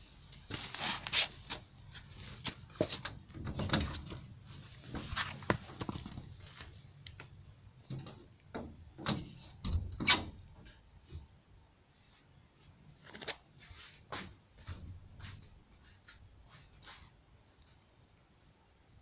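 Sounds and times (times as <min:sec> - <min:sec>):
plastic sack rustling: 0:00.3 - 0:02.8.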